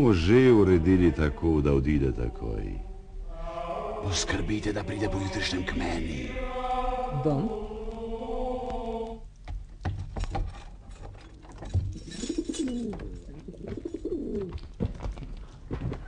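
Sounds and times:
pigeons cooing: 12.0 - 14.6.

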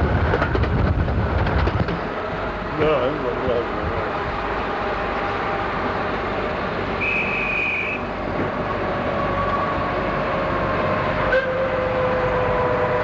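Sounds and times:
miniature train rumbling: 0.0 - 13.0
train whistle toot: 7.0 - 8.1, 11.3 - 13.0.

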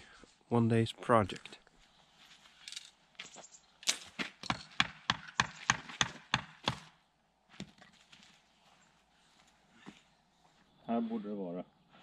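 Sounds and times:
sharp knocks: 4.4 - 7.0.

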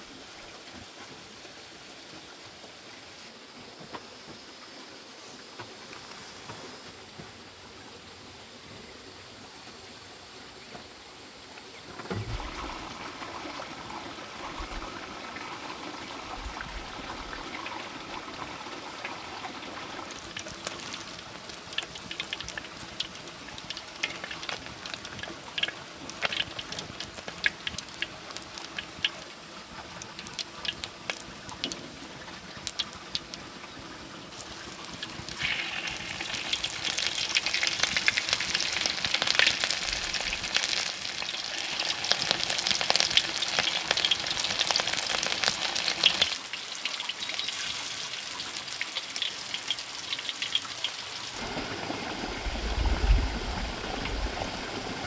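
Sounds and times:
frying sizzle with crackles and pops: 10.6 - 51.8
liquid bubbling in a pan: 12.1 - 51.7.

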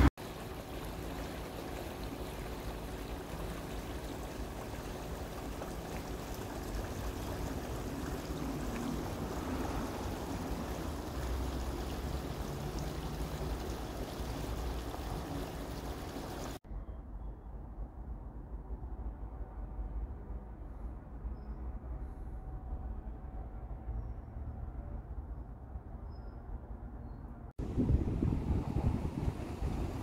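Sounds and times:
water rippling over stones: 0.0 - 16.6.

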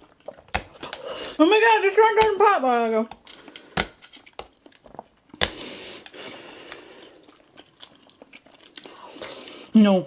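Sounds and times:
wet chewing with smacks: 4.3 - 9.7.

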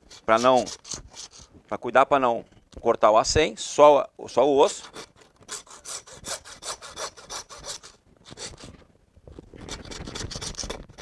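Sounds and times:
hand saw rasping through bone: 0.0 - 1.5, 4.6 - 8.7, 9.6 - 11.0.

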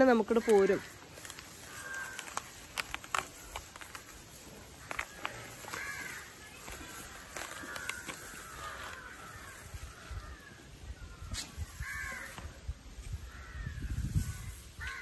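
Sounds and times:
rustle of leafy vine stems: 0.0 - 15.0
crows cawing: 0.1 - 4.1, 4.8 - 15.0.

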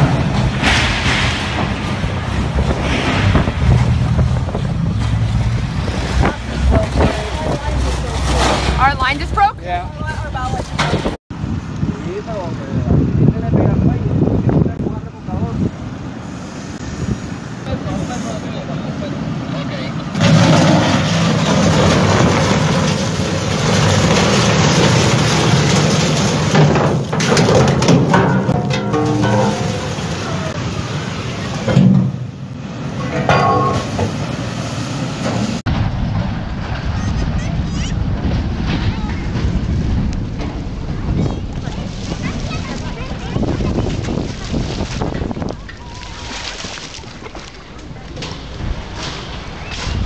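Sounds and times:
water churning at hull: 0.0 - 11.5, 15.2 - 50.0
wind buffeting microphone: 0.0 - 19.0, 35.4 - 50.0
ship engine rumble: 0.0 - 50.0.

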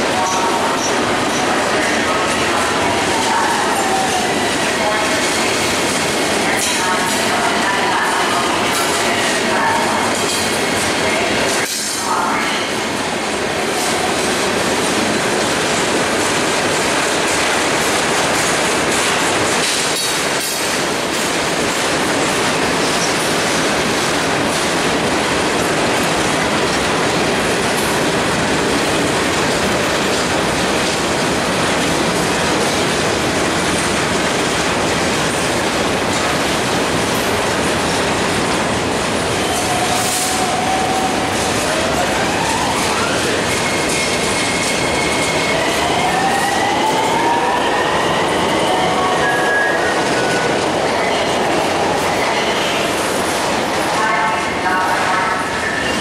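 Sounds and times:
train wheels rumbling over rails: 0.0 - 56.0
train wheel squeal: 42.4 - 50.5.

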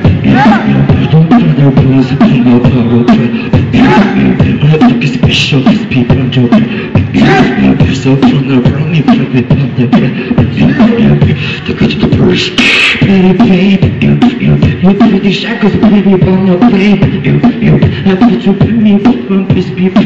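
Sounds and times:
hummed bass line: 0.0 - 12.4
human beatboxing: 0.0 - 20.0.

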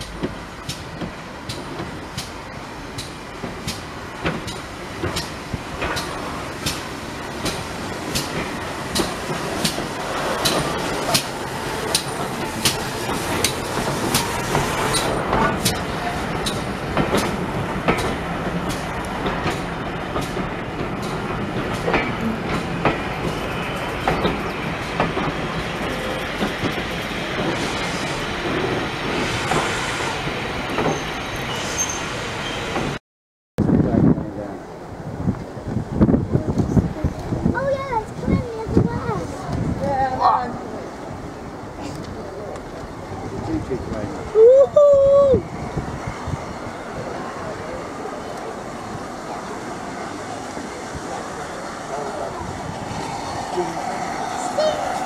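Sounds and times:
train wheels clicking over rail joints: 0.0 - 30.0.

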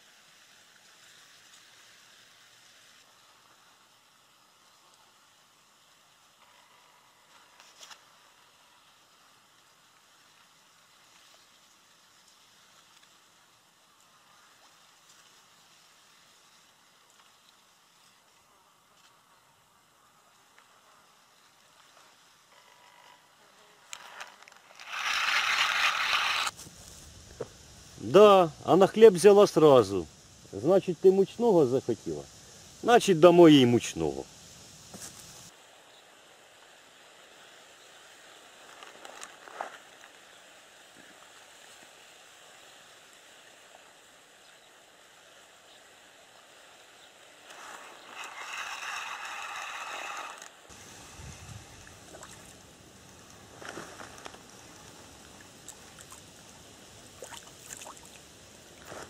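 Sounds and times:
fishing reel whirring: 23.9 - 26.5, 47.5 - 50.6
small waves lapping: 47.4 - 59.0.

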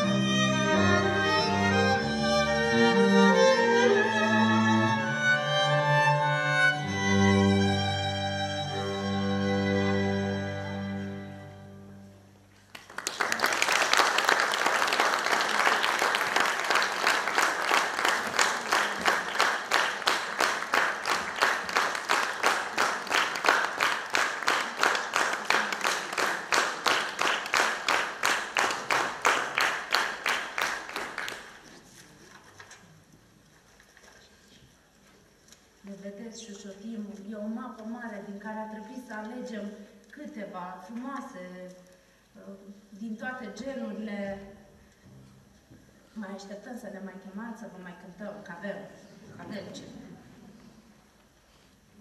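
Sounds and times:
string quartet chord: 0.0 - 12.5
audience applause: 12.6 - 32.0
rhythmic clapping in unison: 12.7 - 31.8.

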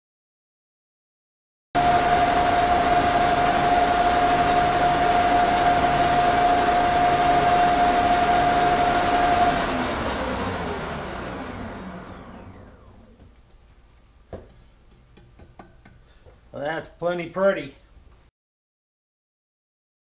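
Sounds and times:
metal lathe whining: 1.8 - 13.2.

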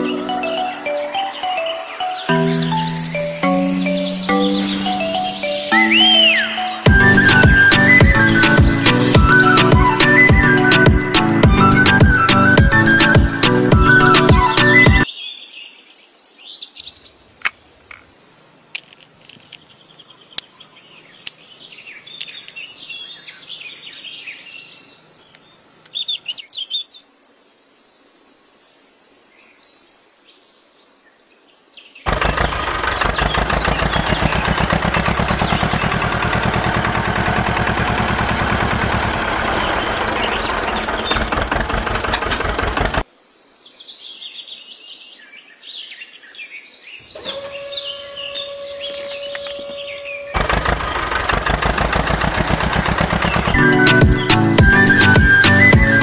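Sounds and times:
birds chirping and tweeting: 0.0 - 56.0
loud steady noise with fast rattle: 32.1 - 43.0, 50.4 - 54.4
sharp clicks: 32.1 - 43.0, 50.4 - 54.5.

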